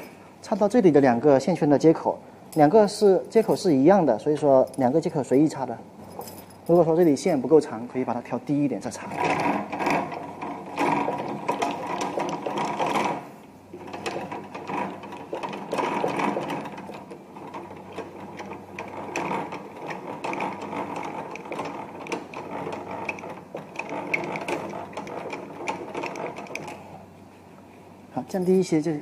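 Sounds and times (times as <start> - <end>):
screw mechanism clicking and ratcheting: 13.8 - 26.8.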